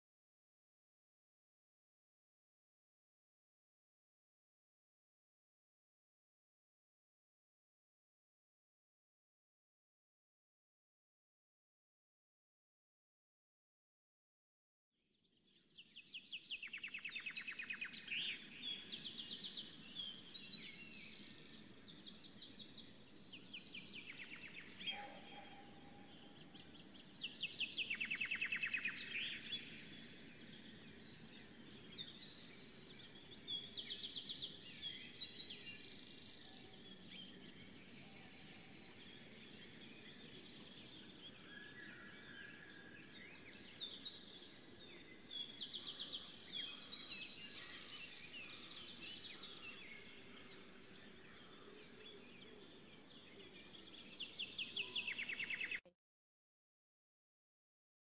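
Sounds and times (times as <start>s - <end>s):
songbirds singing: 15.2s - 55.9s.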